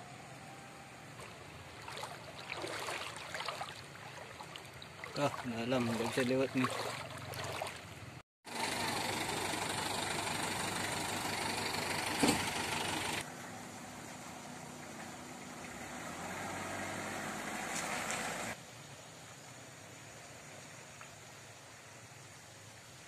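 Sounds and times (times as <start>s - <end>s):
vehicle engine idling: 3.8s - 16.0s
steady hiss: 18.3s - 23.0s.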